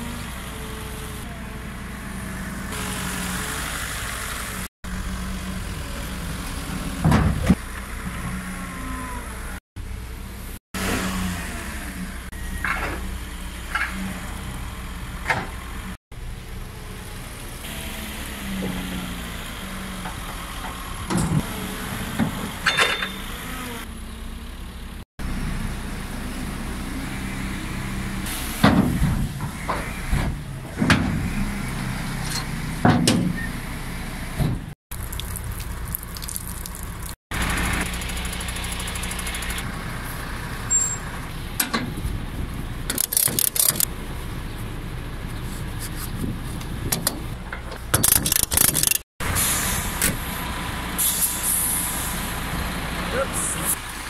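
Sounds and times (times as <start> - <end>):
forklift engine running: 0.0 - 34.8, 36.9 - 54.0
metallic clanks and knocks: 22.2 - 23.2
ratchet strap clicks: 42.9 - 43.9, 48.0 - 49.0.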